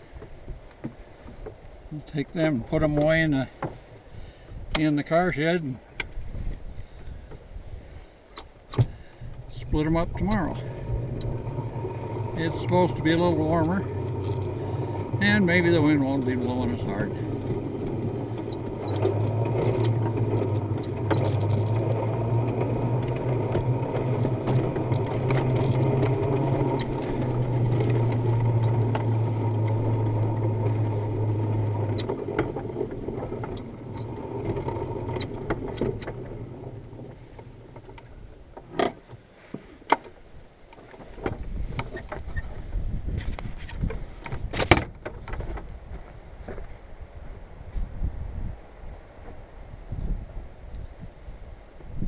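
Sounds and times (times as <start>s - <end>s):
small engine running: 9.5s - 38.3s
light clicks and rattles: 9.7s - 39.2s.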